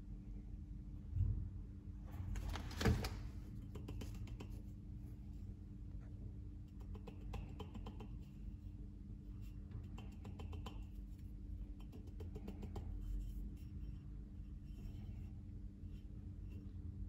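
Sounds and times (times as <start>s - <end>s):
steady low hum: 0.0s - 17.0s
fingers tapping metal rim: 9.9s - 11.0s.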